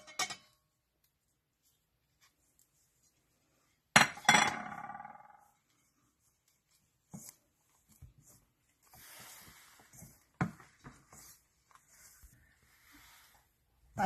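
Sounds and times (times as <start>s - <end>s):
flour rustling and scrunching: 5.8s - 13.7s.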